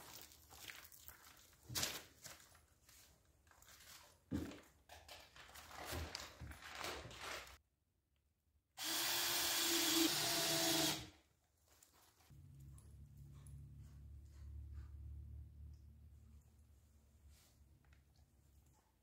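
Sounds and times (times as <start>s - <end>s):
power tool whining: 8.8s - 11.1s.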